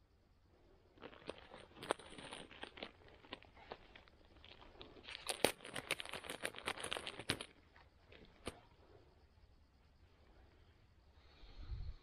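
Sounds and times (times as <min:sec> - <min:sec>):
plastic crinkling and clicking: 0:01.0 - 0:08.6.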